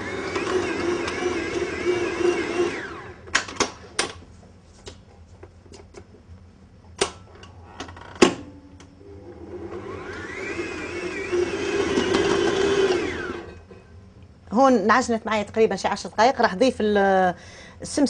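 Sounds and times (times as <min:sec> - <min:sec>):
stand mixer motor winding down: 0:00.0 - 0:03.2, 0:09.2 - 0:13.6.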